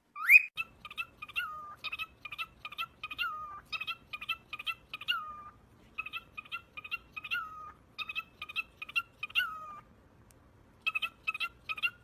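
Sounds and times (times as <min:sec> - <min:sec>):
cockatiel chirping and whistling: 0:00.2 - 0:09.9, 0:10.8 - 0:12.0.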